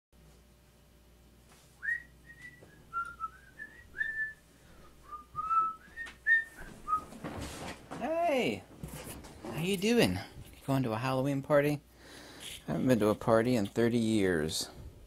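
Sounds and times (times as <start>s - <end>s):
person whistling: 1.8s - 7.0s.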